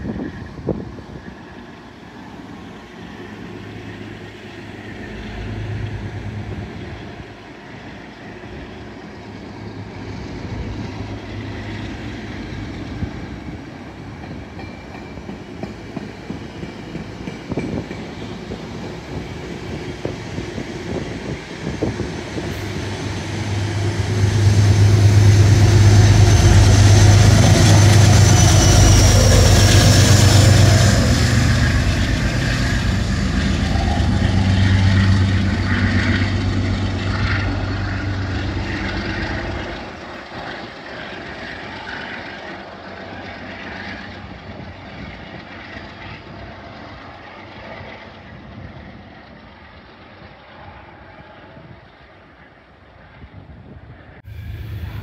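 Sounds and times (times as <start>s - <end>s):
locomotive low drone: 0.0s - 55.0s
train wheels clicking over rail joints: 14.0s - 42.6s.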